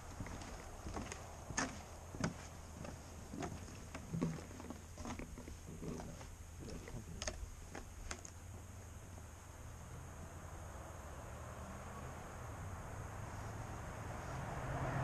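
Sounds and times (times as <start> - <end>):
footsteps on wooden planks: 0.0 - 9.2.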